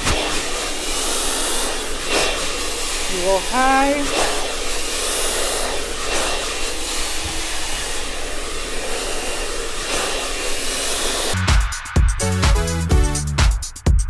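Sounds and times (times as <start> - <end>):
hair dryer blowing: 0.0 - 11.8.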